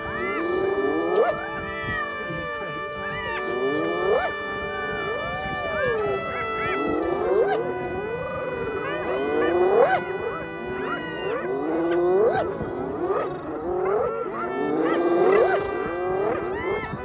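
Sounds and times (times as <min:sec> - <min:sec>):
hyenas whooping: 0:06.6 - 0:17.0.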